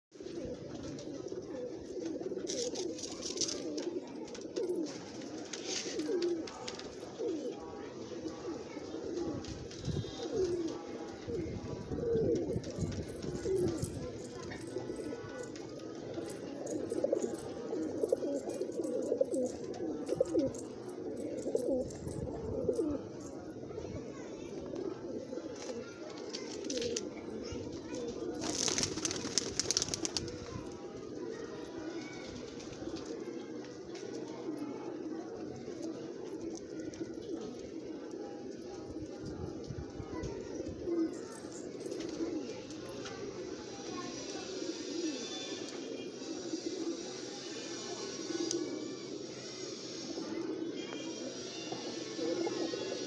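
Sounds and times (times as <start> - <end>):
pigeons cooing: 0.2 - 53.0
scratchy rustle: 4.8 - 7.4.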